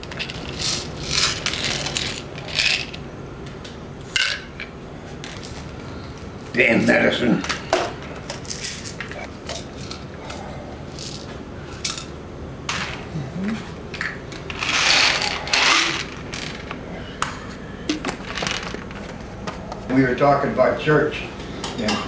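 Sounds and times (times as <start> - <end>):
pills rattling: 0.0 - 3.0, 14.4 - 16.7, 18.1 - 19.0.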